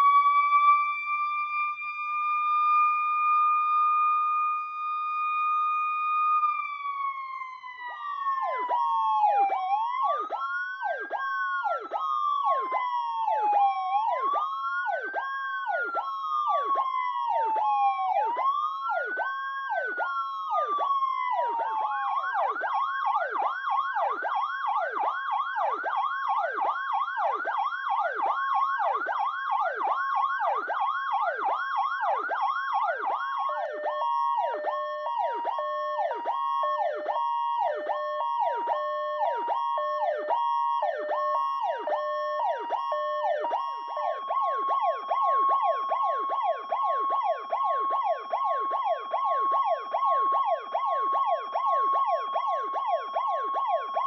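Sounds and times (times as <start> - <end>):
two-pitch siren tone: 0.0 - 6.5, 7.8 - 23.2, 32.8 - 54.0
siren wail: 0.0 - 54.0
siren yelp: 0.0 - 54.0
pulsing electronic siren warble: 20.1 - 54.0.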